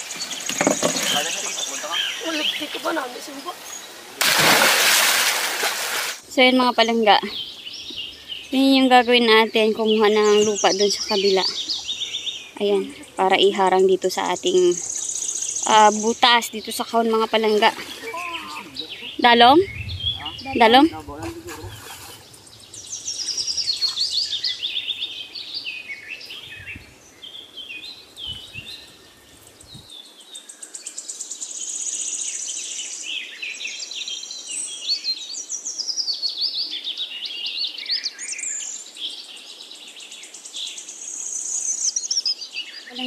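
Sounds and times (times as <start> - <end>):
birds singing: 0.0 - 5.0, 6.2 - 43.0
faint low thumps: 18.7 - 22.8.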